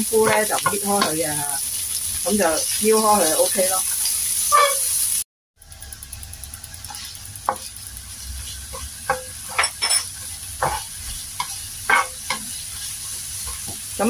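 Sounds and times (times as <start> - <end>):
onions sizzling in oil: 0.0 - 14.0
spatula scraping a pan: 4.0 - 5.0, 6.9 - 14.0.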